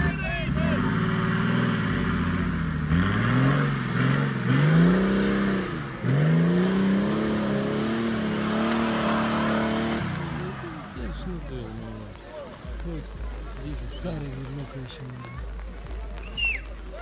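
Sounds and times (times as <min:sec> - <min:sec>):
car engine revving hard: 0:00.0 - 0:11.8.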